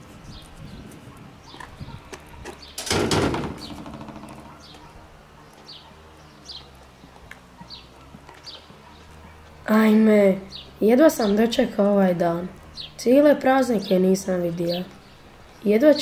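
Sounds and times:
small birds chirping: 0.0s - 16.0s
metal gate clanging shut: 2.7s - 4.8s.

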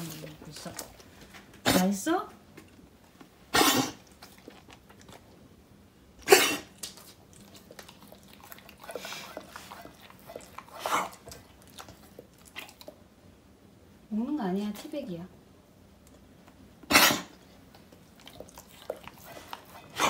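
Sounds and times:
dog chewing and licking: 0.0s - 1.6s, 3.8s - 5.5s, 6.6s - 13.1s, 17.3s - 20.0s.

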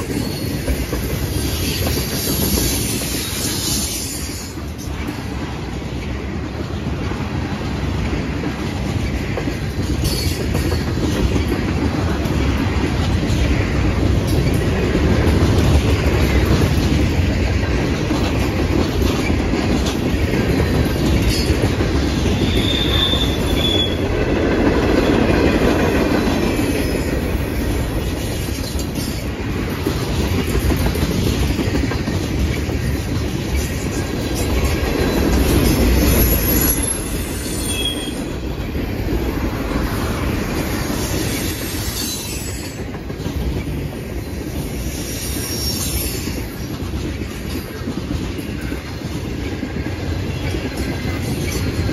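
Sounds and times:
train wheels rumbling on rail: 0.0s - 51.9s
high wheel squeals: 22.3s - 24.0s, 35.0s - 38.3s, 41.0s - 42.8s.

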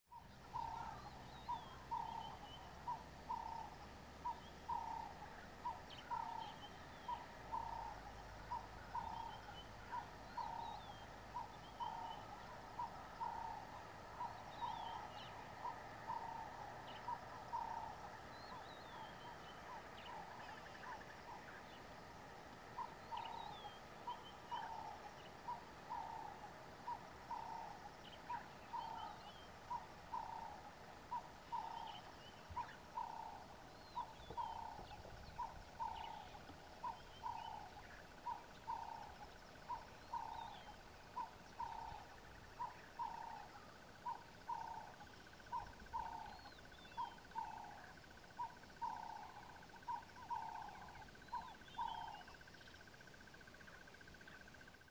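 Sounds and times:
small birds chirping faintly: 0.1s - 54.9s
bird bubbling hooting call: 22.7s - 52.6s.

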